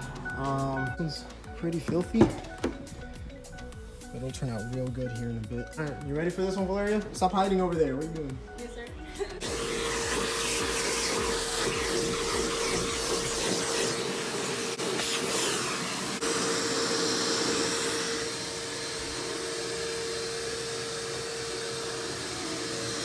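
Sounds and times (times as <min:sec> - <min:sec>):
vacuum cleaner running: 0:00.0 - 0:03.0, 0:09.3 - 0:23.0.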